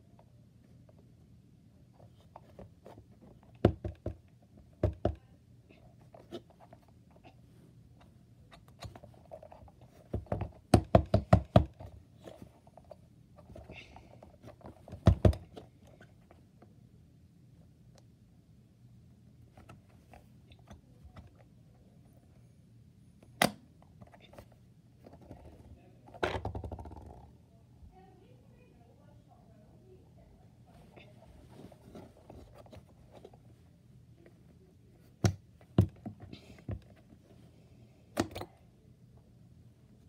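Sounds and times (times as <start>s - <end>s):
rubber toy thudding on desk: 26.2s - 27.2s.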